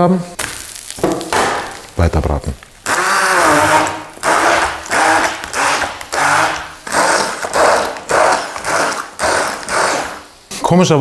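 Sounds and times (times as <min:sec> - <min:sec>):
immersion blender whirring: 0:02.8 - 0:10.3.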